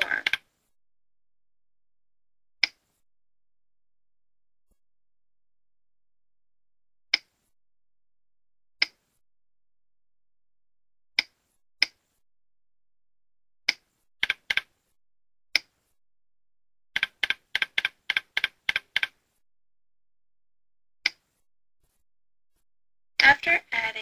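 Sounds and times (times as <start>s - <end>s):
mouse and keyboard clicks: 13.7s - 14.7s, 17.0s - 19.2s.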